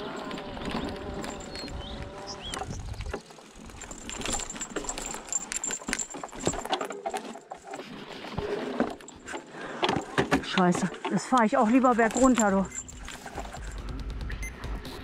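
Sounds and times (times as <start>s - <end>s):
bike rattling over rocks: 0.0s - 13.8s
wind rumble on microphone: 0.6s - 3.2s.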